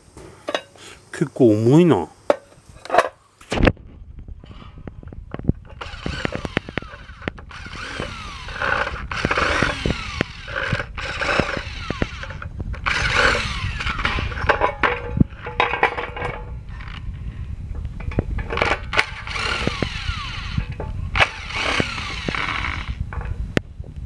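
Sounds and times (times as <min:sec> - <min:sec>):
screws and plastic rattling: 0:05.6 - 0:17.1, 0:18.0 - 0:23.4
power screwdriver whirring: 0:05.8 - 0:14.4, 0:18.9 - 0:23.0.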